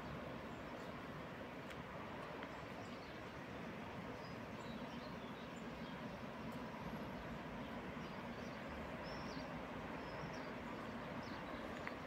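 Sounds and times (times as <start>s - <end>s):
outdoor ambient noise: 0.0s - 12.0s
faint bird chirps: 8.0s - 12.0s.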